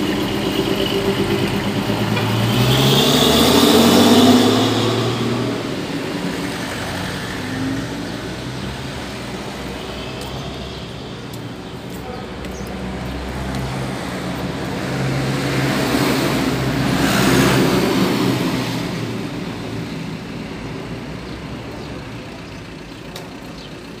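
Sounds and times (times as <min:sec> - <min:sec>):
vehicle passing close: 0:00.0 - 0:09.6
passing car and truck engines: 0:00.0 - 0:24.0.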